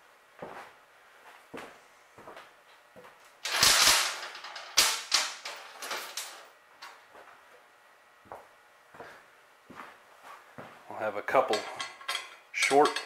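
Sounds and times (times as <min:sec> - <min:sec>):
bolts clicking on steel: 0:11.5 - 0:13.0.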